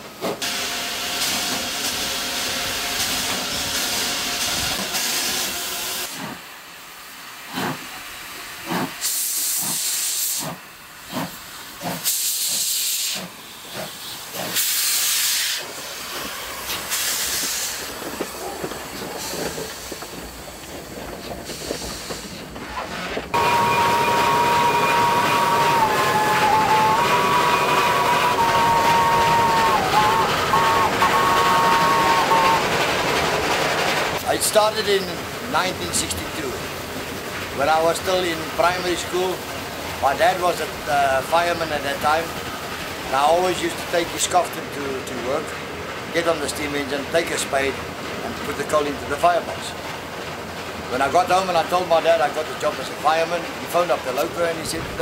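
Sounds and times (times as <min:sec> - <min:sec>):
steam hissing: 0:00.4 - 0:45.6
locomotive exhaust beats: 0:08.6 - 0:35.2
steam whistle: 0:23.4 - 0:32.7.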